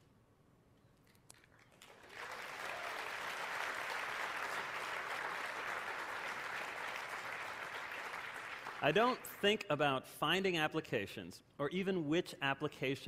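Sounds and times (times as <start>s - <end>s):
audience applauding: 1.6s - 9.5s.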